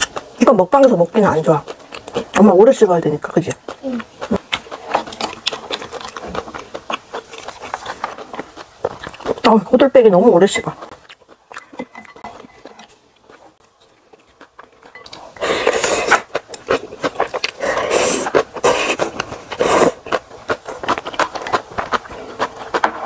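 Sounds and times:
chewing: 0:00.0 - 0:23.0
loud noodle slurps: 0:17.6 - 0:20.2.

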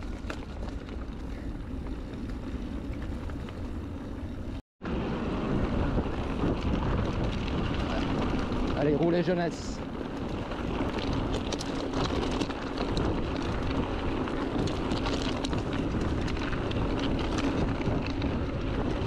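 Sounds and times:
bike rattling: 0:00.0 - 0:19.0
wind buffeting microphone: 0:00.0 - 0:19.0
tyres crunching on gravel: 0:06.2 - 0:19.0.

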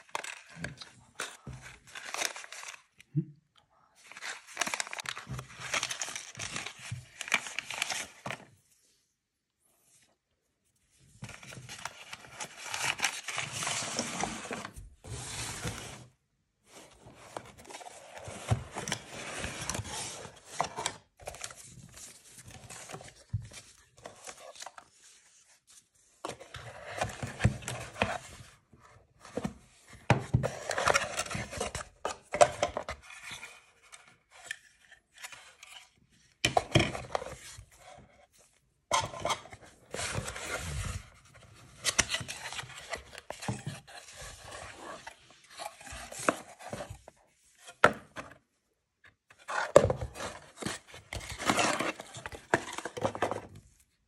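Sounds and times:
cardboard rustling and scraping: 0:11.0 - 0:36.0, 0:36.6 - 0:48.4, 0:49.3 - 0:54.0.

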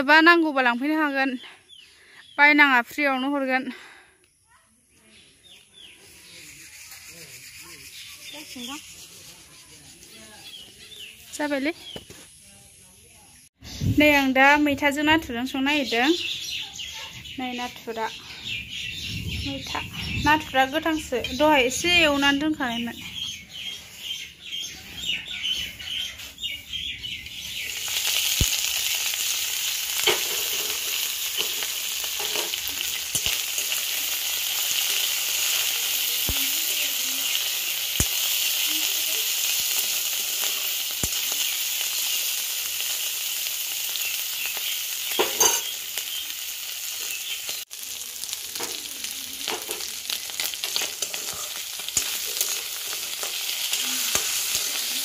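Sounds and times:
fish frying in oil: 0:27.3 - 0:55.0
spatula scraping wok: 0:27.7 - 0:36.3, 0:49.4 - 0:55.0.

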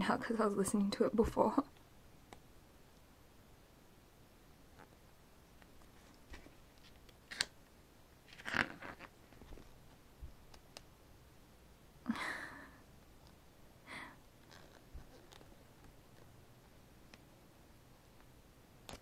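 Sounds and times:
book pages turning: 0:05.8 - 0:07.6, 0:08.3 - 0:09.9, 0:14.4 - 0:16.3.

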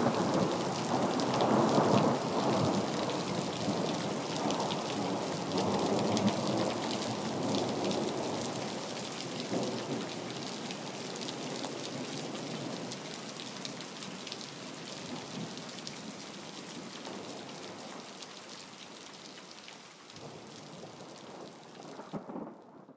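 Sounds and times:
rain falling: 0:00.0 - 0:22.9
low rumble of thunder: 0:20.2 - 0:22.9.

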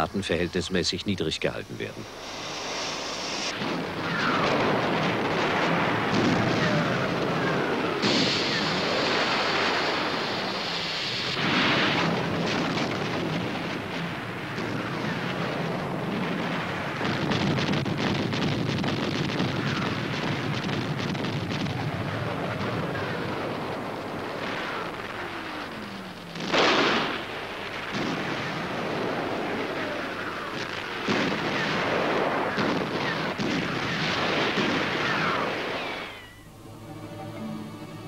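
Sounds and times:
rumble of explosions: 0:00.0 - 0:36.6
falling shell whistles: 0:02.7 - 0:04.8, 0:06.4 - 0:10.0, 0:35.0 - 0:36.5.

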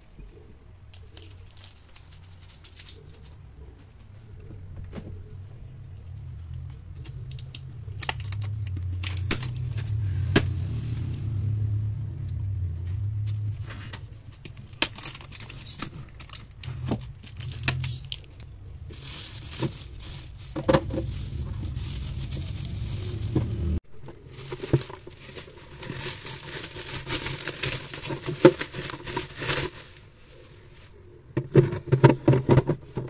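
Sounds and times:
bubble wrap crinkling: 0:00.9 - 0:03.4, 0:06.3 - 0:10.8, 0:12.4 - 0:31.0
low hum: 0:04.0 - 0:14.7, 0:16.2 - 0:24.2.

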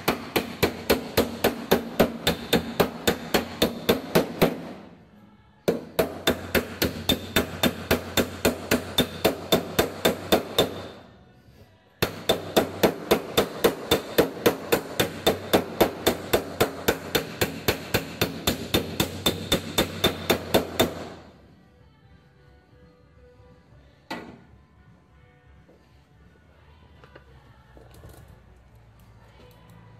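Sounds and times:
hammer striking sheet metal: 0:05.7 - 0:11.0, 0:12.0 - 0:21.3.

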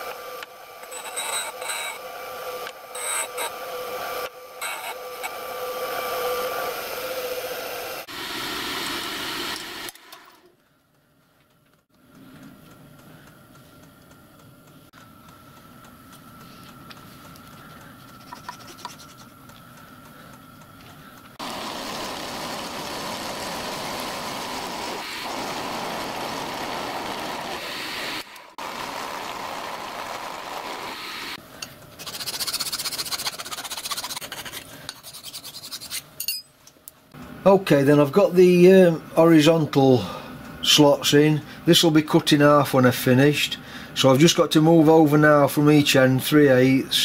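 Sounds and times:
milling machine whine: 0:00.0 - 0:10.4, 0:14.6 - 0:31.7.

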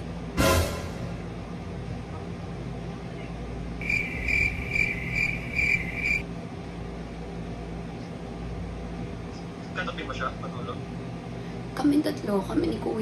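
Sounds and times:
cricket chirping: 0:03.8 - 0:06.2.

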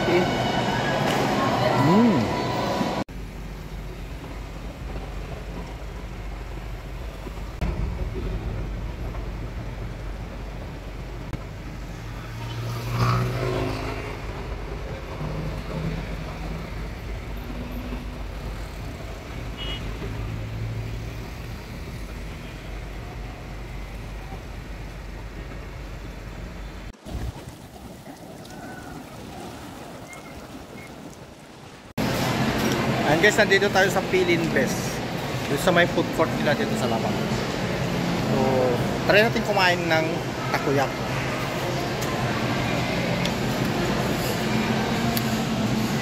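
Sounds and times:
passing cars rumbling: 0:00.0 - 0:26.9
vehicle passing close: 0:07.6 - 0:22.3.

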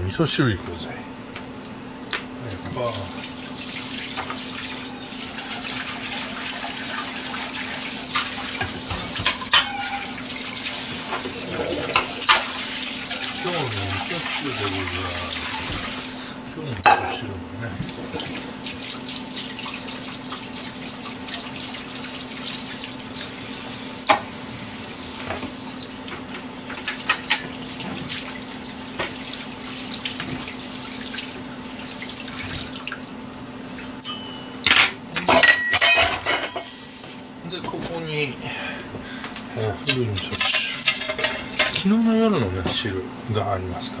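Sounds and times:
steady low hum: 0:07.0 - 0:26.8
dishes and cutting board clattering: 0:08.6 - 0:10.2, 0:16.8 - 0:17.2, 0:34.0 - 0:36.8, 0:39.9 - 0:41.9
dishes clinking: 0:08.6 - 0:10.3, 0:11.1 - 0:15.9, 0:16.8 - 0:18.4, 0:33.8 - 0:36.8, 0:39.9 - 0:41.9.

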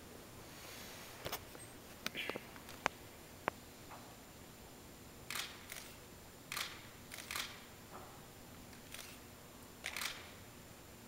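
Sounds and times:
camera shutters clicking: 0:05.3 - 0:07.7, 0:08.7 - 0:09.2, 0:09.8 - 0:10.4.

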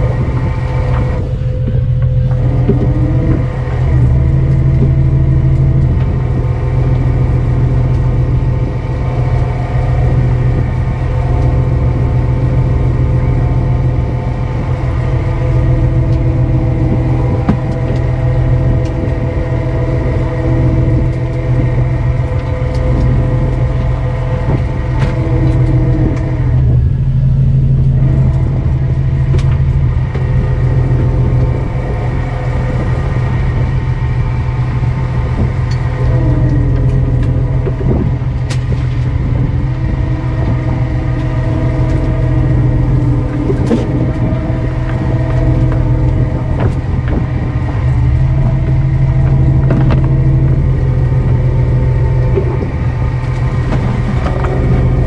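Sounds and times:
boat engine humming: 0:00.0 - 0:55.0
engine whine: 0:00.0 - 0:55.0.

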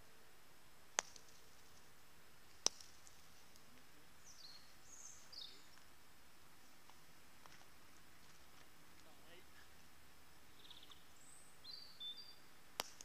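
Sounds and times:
faint bird chirp: 0:02.5 - 0:12.6.

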